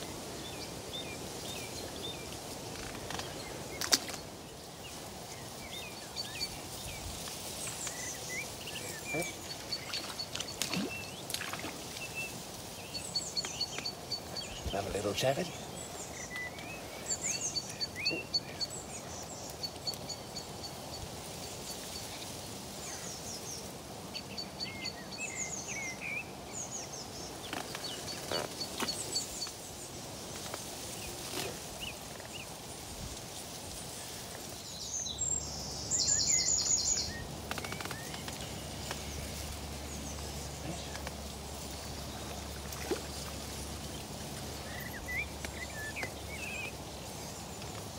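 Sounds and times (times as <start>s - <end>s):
steady outdoor hiss: 0.0s - 47.9s
wild birds chirping and trilling: 0.0s - 47.9s.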